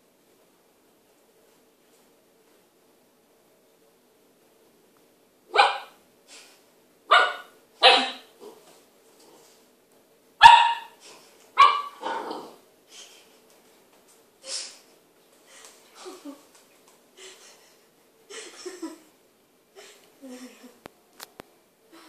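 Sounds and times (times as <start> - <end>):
puppy barking: 5.5 - 6.0, 7.1 - 8.3, 10.4 - 11.0, 11.6 - 12.6
puppy yipping: 7.2 - 8.3, 10.4 - 11.0, 11.6 - 12.4.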